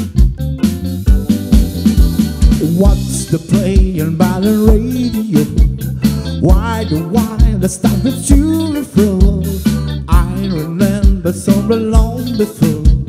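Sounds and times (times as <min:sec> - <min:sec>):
bass guitar: 0:00.0 - 0:13.0
drum kit beat: 0:00.0 - 0:13.0
electric guitar: 0:00.0 - 0:13.0
keyboard: 0:00.0 - 0:13.0
man singing: 0:02.6 - 0:13.0.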